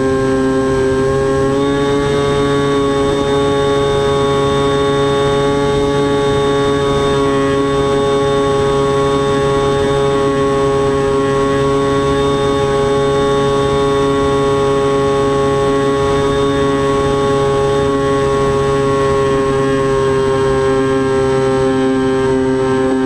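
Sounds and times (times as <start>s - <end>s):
electric motor and propeller whine: 0.0s - 23.0s.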